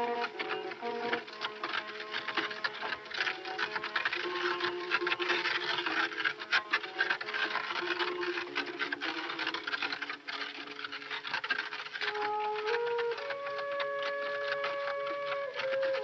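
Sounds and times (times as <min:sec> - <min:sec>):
wooden cart wheels rattling: 0:00.0 - 0:16.0.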